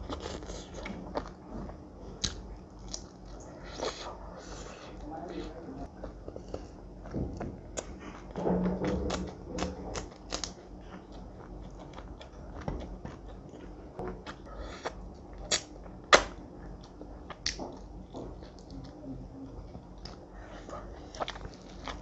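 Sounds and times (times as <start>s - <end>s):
crunchy bites and chewing: 6.4s - 13.4s, 19.9s - 22.0s.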